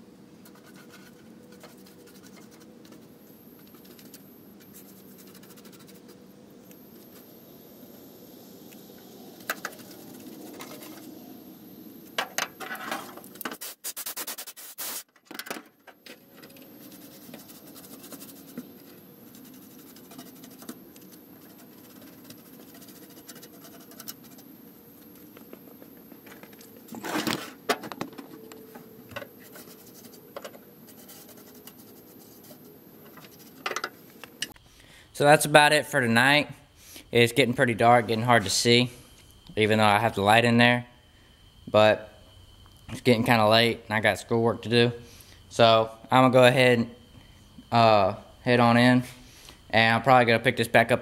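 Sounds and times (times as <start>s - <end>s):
paintbrush scraping on metal: 0.4s - 3.1s, 3.7s - 6.2s, 9.4s - 11.2s, 16.7s - 24.5s, 29.3s - 33.8s.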